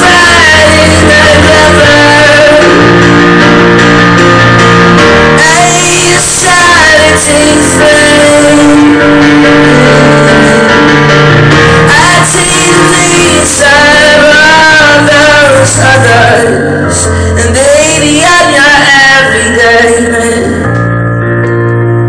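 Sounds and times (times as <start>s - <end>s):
man singing: 0.0s - 3.0s, 5.4s - 10.7s, 11.9s - 20.7s
keyboard chords: 0.0s - 22.0s.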